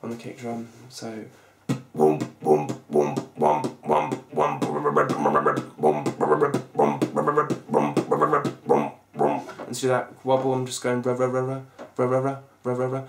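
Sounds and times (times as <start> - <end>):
beatboxed throat bass: 1.6 - 9.7
beatboxed kick drum: 1.6 - 9.8.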